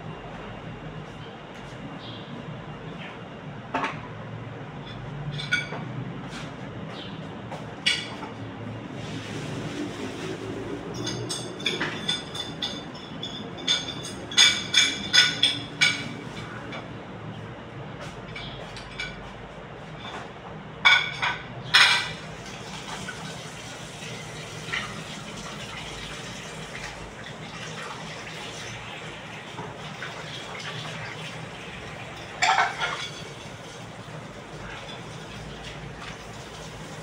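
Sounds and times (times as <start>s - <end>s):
steady background noise: 0.0s - 37.0s
dishes and utensils clinking: 4.8s - 7.0s, 7.8s - 8.3s, 9.9s - 16.9s, 18.3s - 22.3s, 31.9s - 36.3s.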